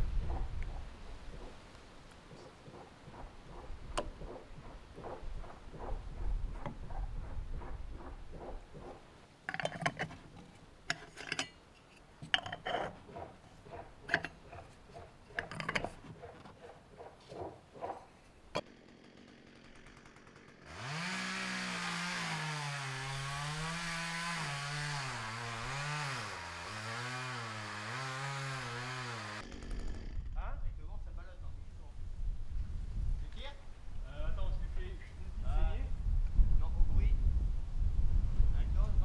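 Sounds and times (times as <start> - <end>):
chainsaw running: 18.6 - 30.4.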